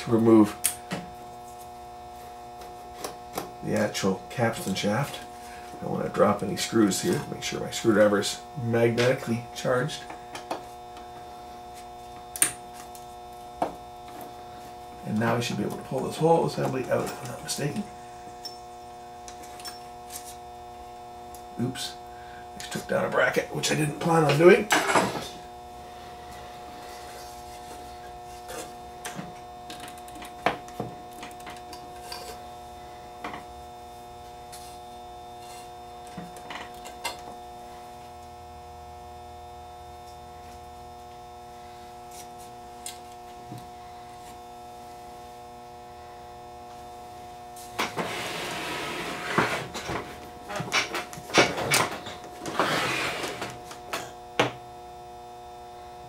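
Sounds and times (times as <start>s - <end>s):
electrical hum: 0.0s - 56.0s
wooden machine scraping on bench: 47.8s - 53.6s.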